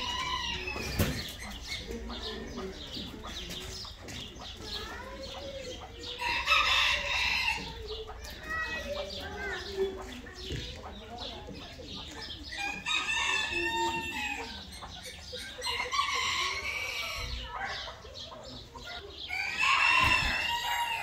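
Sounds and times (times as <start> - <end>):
roosters crowing: 0.0 - 1.6, 5.9 - 9.2, 12.4 - 18.0, 19.1 - 21.0
hens clucking: 0.0 - 21.0.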